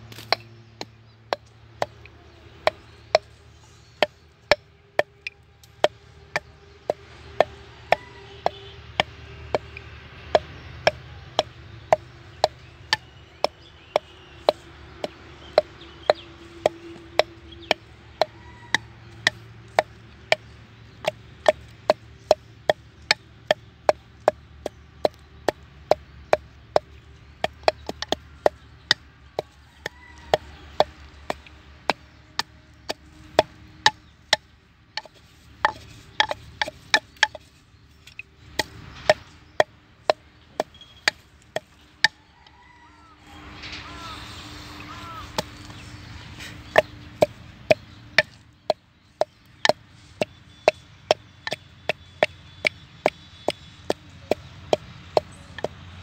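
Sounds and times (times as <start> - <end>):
pestle pounding in mortar: 0.1 - 37.6, 38.4 - 42.2, 45.1 - 55.8.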